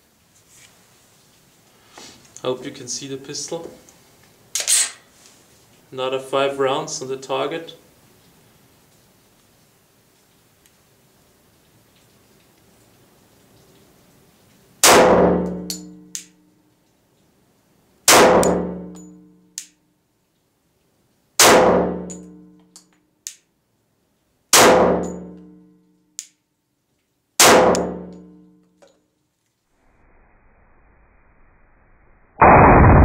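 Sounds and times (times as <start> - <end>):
pistol shots echoing: 14.8 - 15.6, 18.1 - 18.8, 21.4 - 22.2, 27.4 - 28.1.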